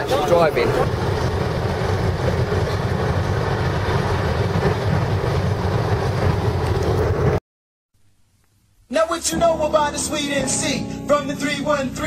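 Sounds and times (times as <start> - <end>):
car road and engine rumble: 0.0 - 7.4.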